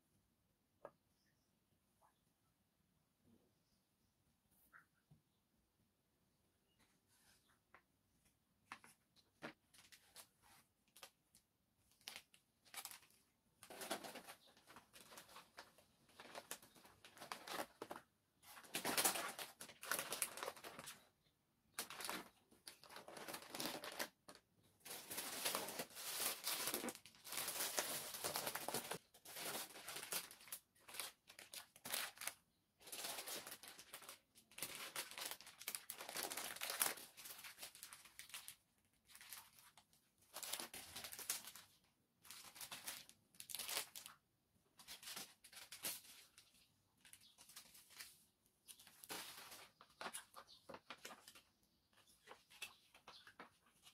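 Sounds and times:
grocery bags crinkling: 18.6s - 21.0s, 21.8s - 44.2s.

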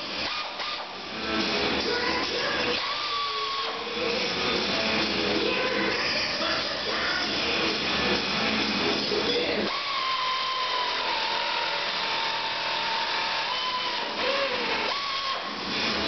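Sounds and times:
air tool whining: 0.0s - 16.0s.

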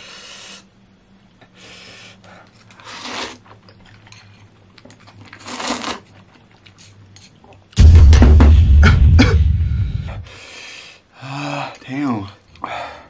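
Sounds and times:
noodles being slurped: 2.5s - 3.7s, 5.0s - 7.0s.

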